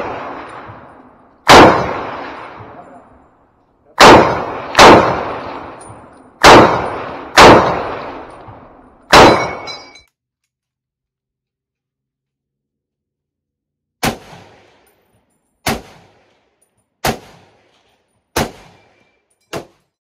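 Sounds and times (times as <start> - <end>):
rifle shots with echo: 0.0 - 3.2, 4.0 - 9.8, 14.0 - 14.9, 15.6 - 19.8
metallic ping of ejected clip: 9.2 - 10.1.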